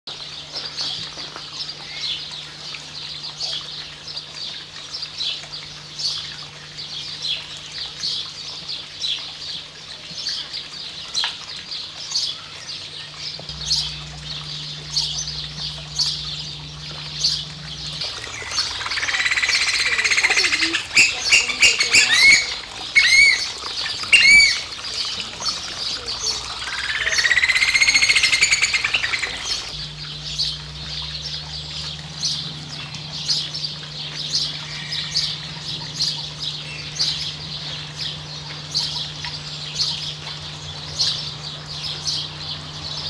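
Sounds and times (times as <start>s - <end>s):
bird high peeping calls: 12.2s - 43.0s
bird trilling: 13.5s - 25.4s, 26.0s - 42.4s.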